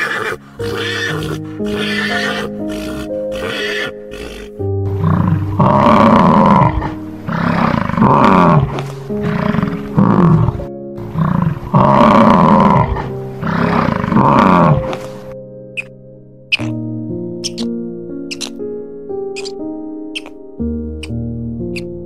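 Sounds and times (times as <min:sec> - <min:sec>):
bison bellowing: 0:00.0 - 0:15.1
background music: 0:00.0 - 0:22.0.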